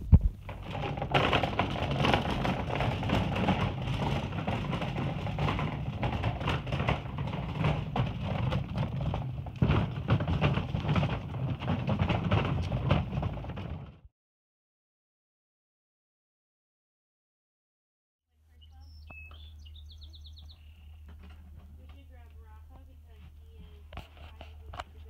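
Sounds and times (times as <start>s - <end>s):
casters rolling over concrete: 0.0s - 14.1s, 20.4s - 25.0s.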